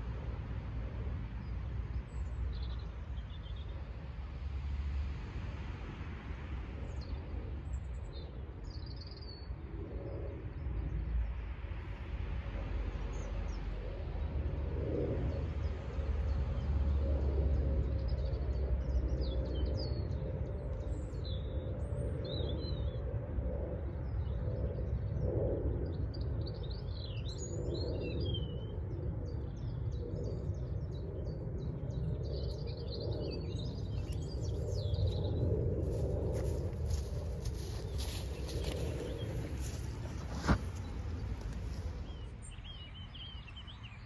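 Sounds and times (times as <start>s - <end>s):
low background rumble: 0.0s - 44.0s
small birds chirping: 26.2s - 44.0s.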